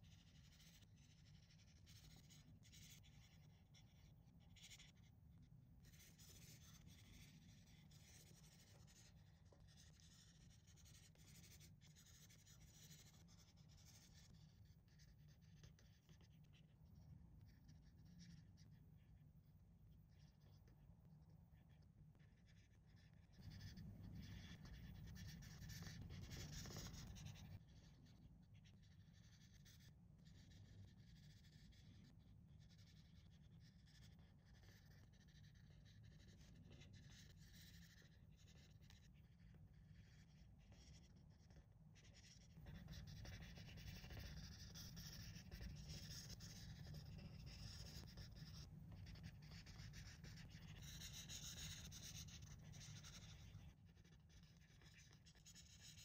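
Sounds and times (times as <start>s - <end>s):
marker scrubbing on paper: 5.9s - 16.3s, 22.5s - 31.9s, 40.0s - 56.0s.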